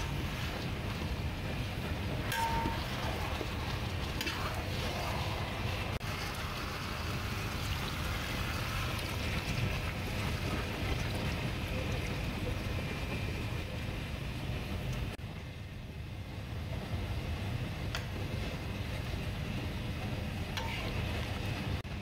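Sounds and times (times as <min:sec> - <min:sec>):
water pouring into hot wok: 0:00.0 - 0:12.7.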